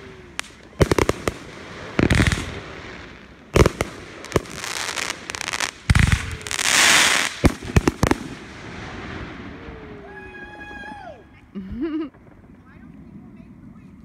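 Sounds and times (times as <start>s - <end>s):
long firework hiss: 0.0s - 10.5s
fireworks bangs: 0.0s - 11.0s.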